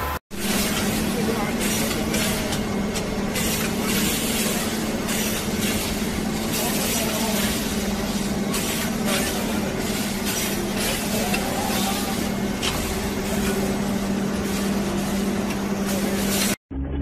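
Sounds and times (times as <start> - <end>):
factory noise: 0.0 - 17.0
machine hum: 0.0 - 17.0.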